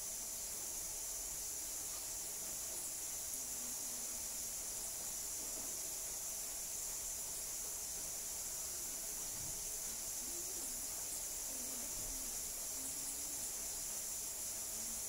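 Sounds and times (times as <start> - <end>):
high-pitched hiss: 0.0 - 15.0
faint indistinct voices: 0.3 - 15.0.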